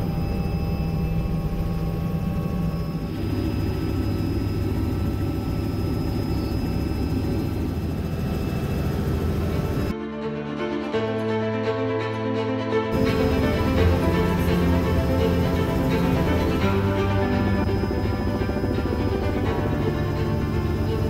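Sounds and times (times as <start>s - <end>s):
turbine whine: 0.0s - 9.9s, 12.9s - 21.0s
helicopter rotors low drone: 0.0s - 21.0s.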